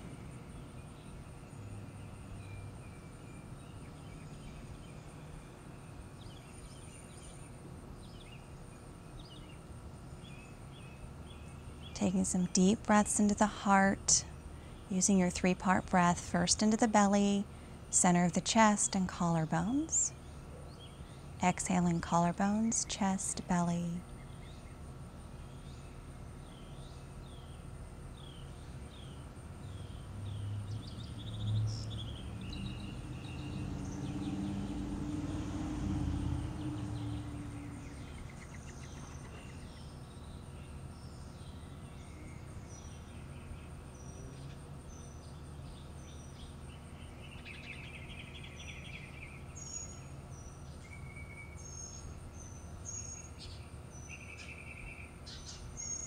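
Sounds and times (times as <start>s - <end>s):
birds chirping: 10.7s - 24.8s, 25.4s - 35.4s.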